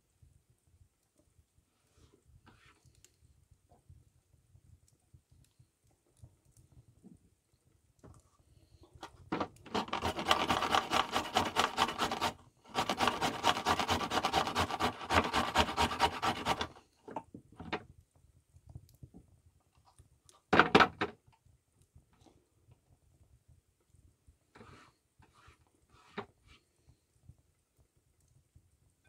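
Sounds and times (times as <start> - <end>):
carrot grating on metal grater: 9.7 - 16.8
short scrape: 9.7 - 16.8, 24.6 - 26.6.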